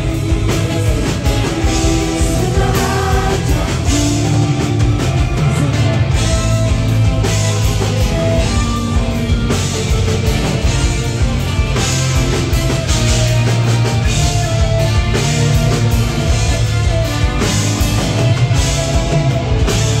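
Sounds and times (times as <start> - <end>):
bass guitar: 0.0 - 20.0
drum kit with cymbal crashes: 0.0 - 20.0
electric guitars: 0.0 - 20.0.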